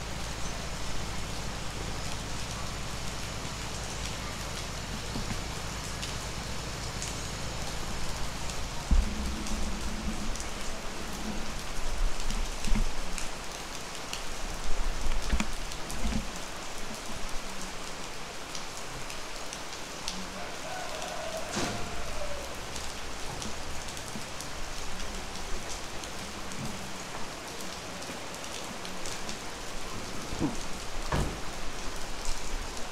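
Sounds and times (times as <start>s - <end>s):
raindrops ticking: 0.0s - 32.9s
steady rain falling: 0.0s - 32.9s
dull low thumps: 7.8s - 11.6s.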